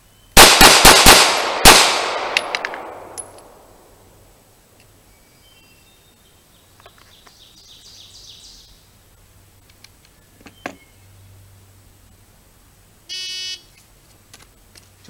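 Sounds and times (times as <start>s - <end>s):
birds chirping: 4.9s - 9.0s, 10.0s - 11.6s.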